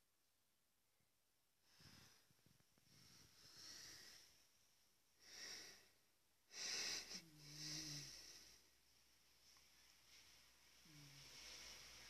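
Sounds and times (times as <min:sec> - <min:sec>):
cat snoring: 0:01.7 - 0:04.3, 0:06.5 - 0:08.6, 0:10.8 - 0:11.7.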